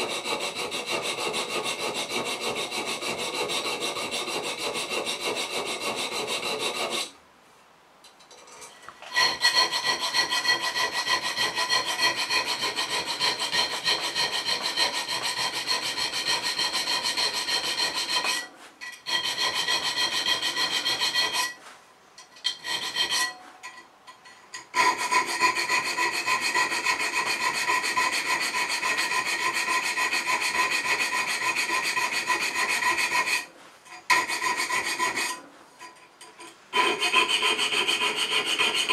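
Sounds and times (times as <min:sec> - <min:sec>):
file scraping steel: 0:00.0 - 0:07.1, 0:09.0 - 0:21.6, 0:22.2 - 0:38.9.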